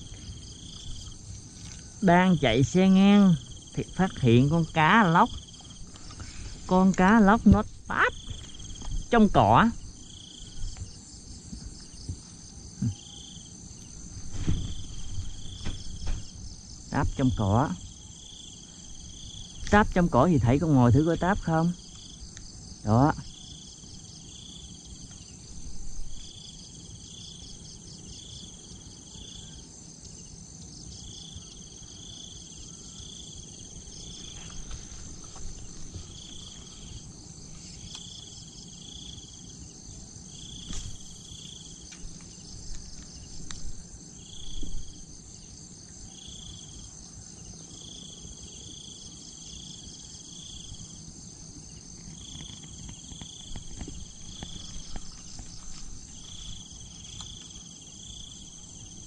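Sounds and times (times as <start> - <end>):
insects trilling: 0.0 - 59.0
faint knocks and rustles: 13.8 - 16.5.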